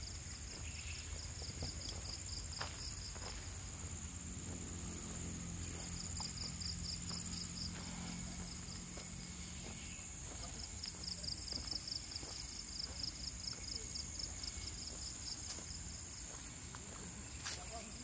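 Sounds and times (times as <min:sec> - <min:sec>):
insects chirring: 0:00.0 - 0:18.0
footsteps on trail: 0:00.4 - 0:18.0.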